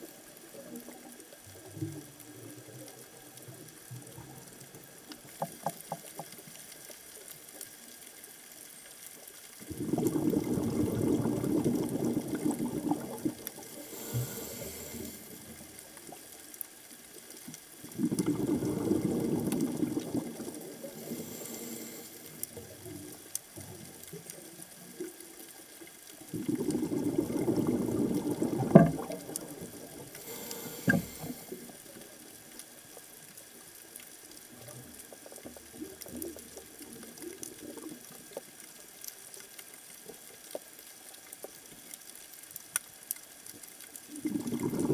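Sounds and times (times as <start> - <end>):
faint inhalation hiss: 0.0 - 41.0
exhaled bubbles underwater: 9.6 - 16.4, 17.7 - 25.3, 26.0 - 32.5, 44.0 - 44.9.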